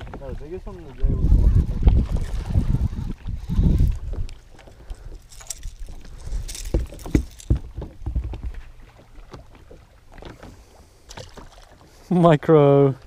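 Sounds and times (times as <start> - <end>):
wind rumble on microphone: 0.0 - 8.6
sharp knocks on boat: 6.7 - 8.6.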